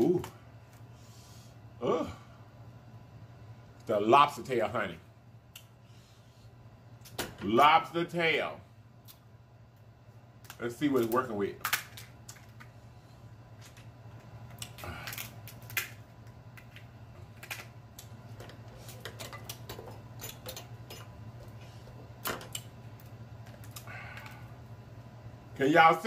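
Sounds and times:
steady low hum: 0:00.0 - 0:26.0
lobster shell cracking: 0:10.4 - 0:12.7, 0:14.5 - 0:18.1.

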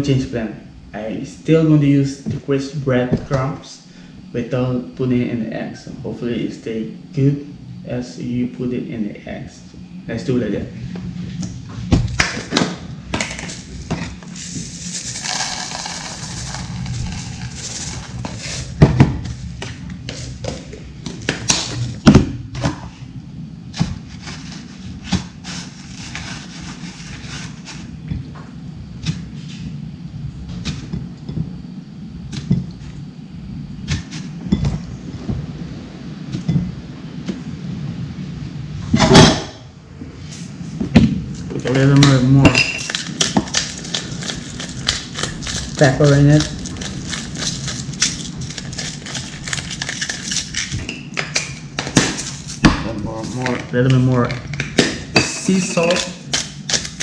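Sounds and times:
bread crumbs rustling into tub: 0:14.3 - 0:18.8, 0:42.8 - 0:50.7.

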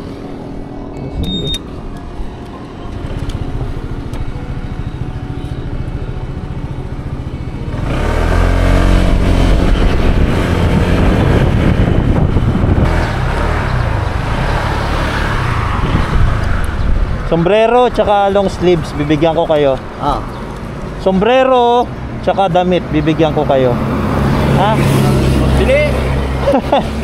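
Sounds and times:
scooter engine running: 0:02.9 - 0:16.0
wind noise on microphone: 0:07.9 - 0:14.5, 0:15.2 - 0:17.3.

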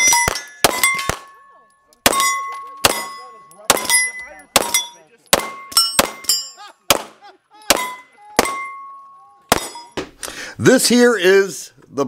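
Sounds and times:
pistol shots: 0:00.0 - 0:01.4, 0:02.0 - 0:08.8, 0:09.5 - 0:10.1
steel targets clanging: 0:00.0 - 0:06.6, 0:07.7 - 0:10.2.

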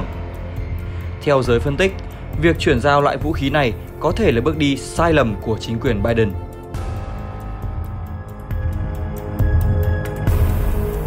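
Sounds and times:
music with pulsing beat: 0:00.0 - 0:11.0.

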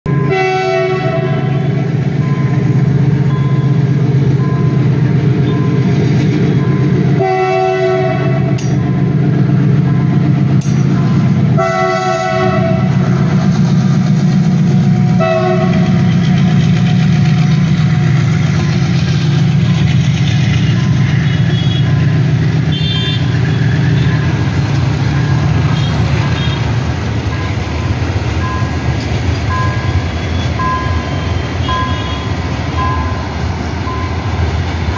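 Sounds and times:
diesel locomotive engine rumble: 0:00.0 - 0:34.9
locomotive horn blasts: 0:00.1 - 0:01.8, 0:07.2 - 0:08.7, 0:11.5 - 0:13.0, 0:15.2 - 0:16.1, 0:21.2 - 0:22.0, 0:22.6 - 0:24.2, 0:25.6 - 0:26.7, 0:31.6 - 0:32.4.

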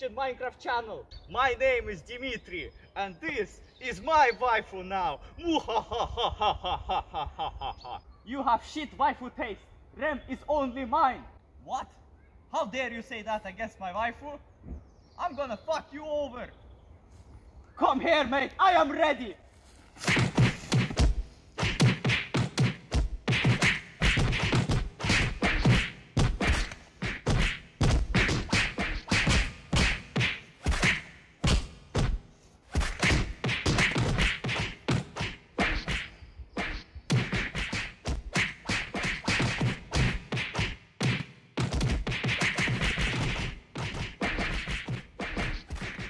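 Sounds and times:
cartoon thumps and whacks: 0:20.0 - 0:46.0.

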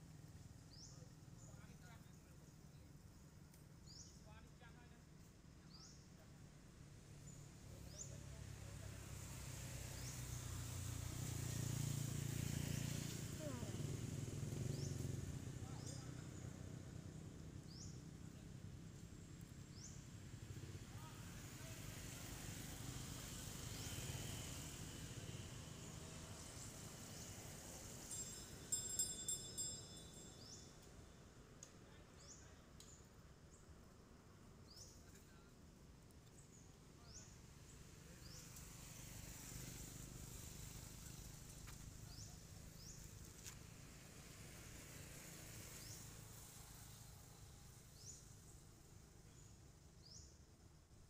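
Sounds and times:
high insect hiss: 0:00.1 - 0:51.0.

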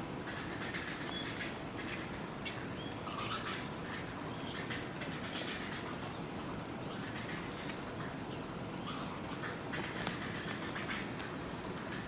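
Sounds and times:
hooves clopping on wet ground: 0:09.1 - 0:12.0.

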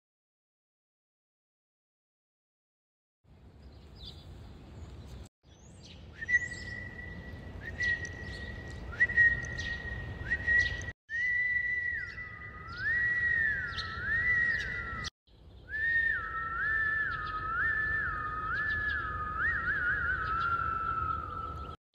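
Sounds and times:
birds chirping: 0:03.3 - 0:21.8
woman whistling: 0:06.2 - 0:07.0, 0:07.6 - 0:15.1, 0:15.7 - 0:21.0.

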